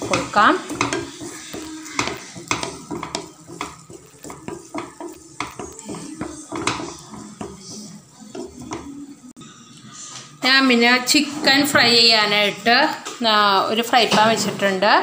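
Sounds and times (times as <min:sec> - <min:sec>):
spatula scraping frying pan: 0:00.0 - 0:09.1.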